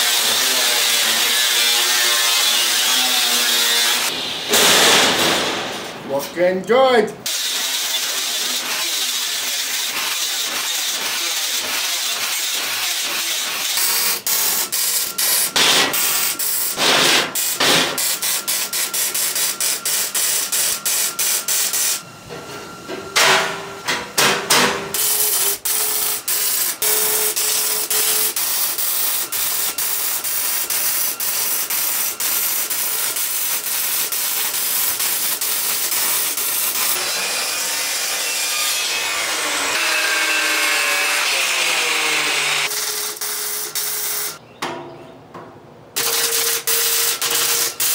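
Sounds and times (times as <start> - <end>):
angle grinder on steel: 0.0 - 4.7, 7.3 - 22.0, 25.0 - 44.4, 46.0 - 47.9
welding crackling hiss: 7.3 - 22.0, 25.0 - 37.0, 42.6 - 44.4, 46.0 - 47.9.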